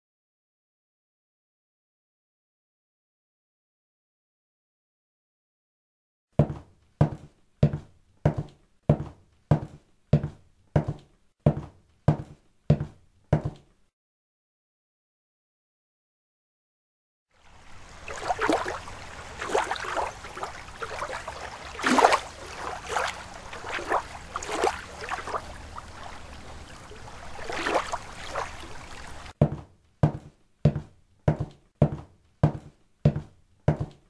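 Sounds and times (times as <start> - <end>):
water sloshing and splashing: 17.4 - 29.6
steady thumping beat: 29.4 - 34.0.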